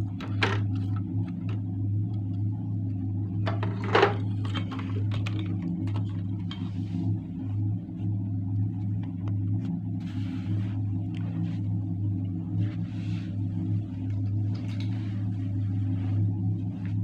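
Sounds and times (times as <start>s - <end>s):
steady low hum: 0.0s - 17.0s
clicks and knocks handling electronics: 3.4s - 6.8s.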